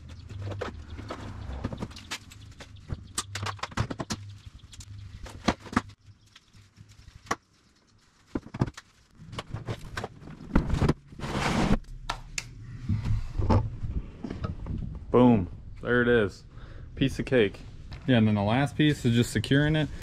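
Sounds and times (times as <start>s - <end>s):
plastic kayak thudding and scraping: 9.4s - 11.8s.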